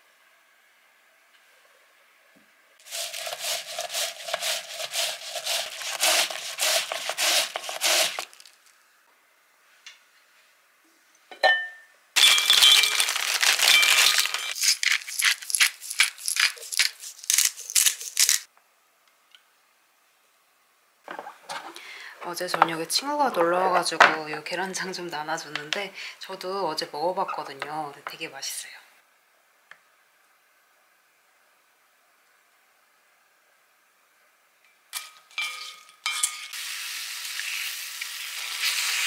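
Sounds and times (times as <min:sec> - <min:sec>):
glass pot lid clinking: 0:11.3 - 0:11.8.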